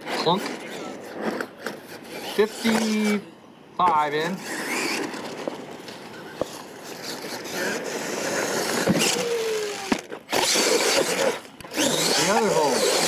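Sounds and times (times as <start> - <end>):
rc truck motor revving: 4.4 - 5.4, 6.4 - 13.0.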